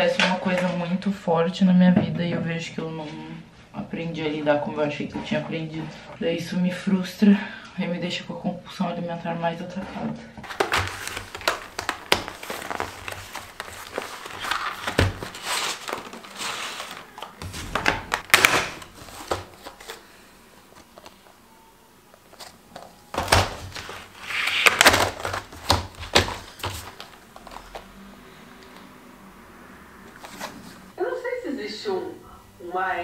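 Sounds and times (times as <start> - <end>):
paint tubes rattling in tray: 10.4 - 20.0, 22.4 - 27.8
plastic packaging crinkling: 10.4 - 21.4, 22.2 - 28.0.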